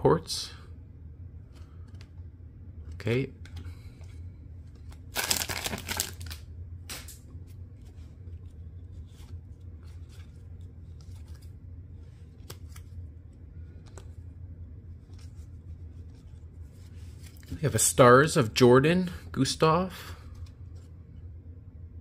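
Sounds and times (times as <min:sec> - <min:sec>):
cards sliding and flicking: 0:04.7 - 0:13.0
foil pack tearing with crinkling: 0:05.1 - 0:06.4.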